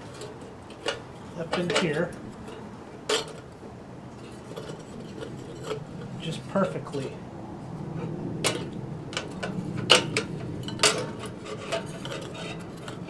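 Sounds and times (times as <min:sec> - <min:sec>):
sharp metal knocks: 0:08.4 - 0:13.0.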